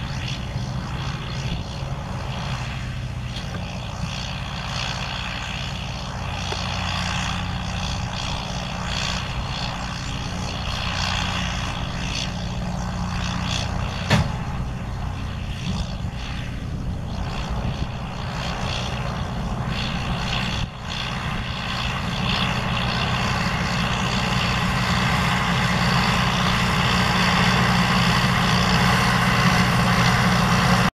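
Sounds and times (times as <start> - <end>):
round baler working: 0.0 - 30.9
tractor diesel engine running: 0.0 - 30.9
sharp knock: 14.1 - 14.4.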